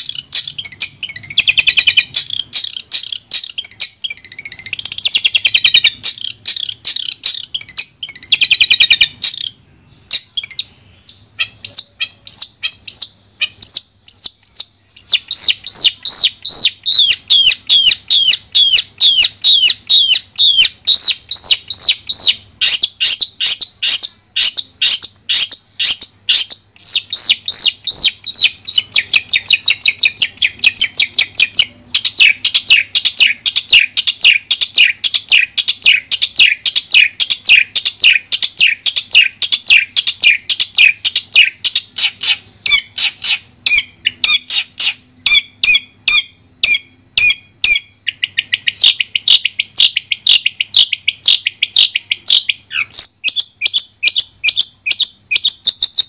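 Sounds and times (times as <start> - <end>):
bird chattering calls: 0.0 - 56.0.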